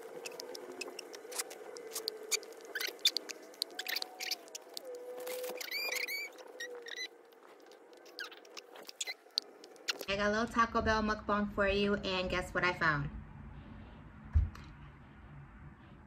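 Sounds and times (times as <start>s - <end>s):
clicks and rustles of handling baby: 0.2s - 10.1s
baby high squeak: 5.3s - 7.1s.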